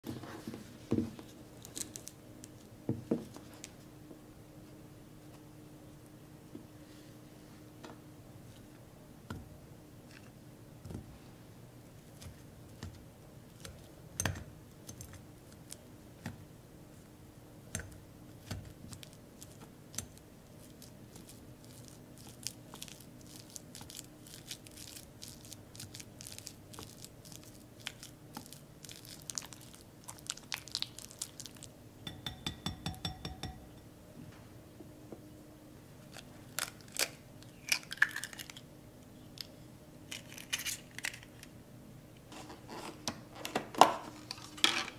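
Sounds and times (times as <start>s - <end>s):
taps ringing glass bowl: 32.0s - 33.9s
whisk clicking against glass bowl: 32.1s - 33.7s.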